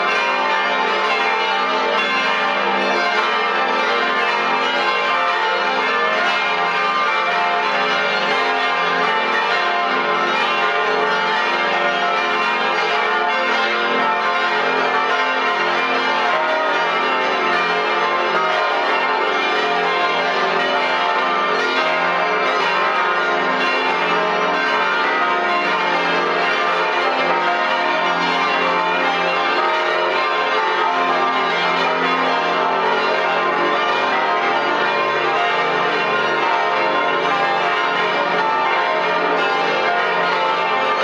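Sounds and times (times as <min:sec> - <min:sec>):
church bells ringing: 0:00.0 - 0:41.0.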